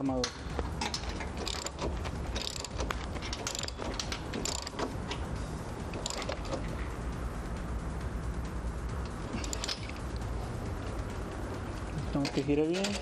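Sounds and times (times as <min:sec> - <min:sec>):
ratchet wrench clicking: 0:00.2 - 0:05.3, 0:05.9 - 0:06.8, 0:09.0 - 0:10.3.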